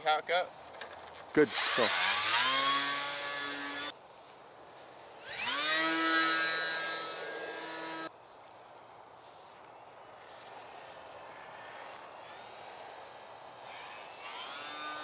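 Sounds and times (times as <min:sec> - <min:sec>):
electric motor and propeller whining: 0:00.7 - 0:03.9, 0:05.1 - 0:08.1, 0:09.4 - 0:15.0.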